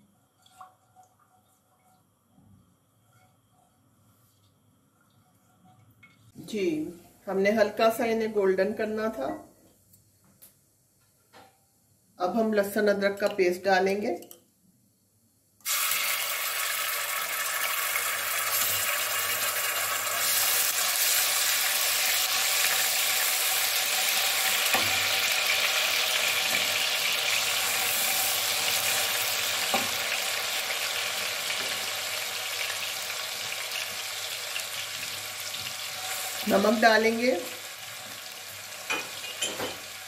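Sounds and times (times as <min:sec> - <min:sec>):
paste sizzling in hot oil: 0:15.6 - 0:36.8.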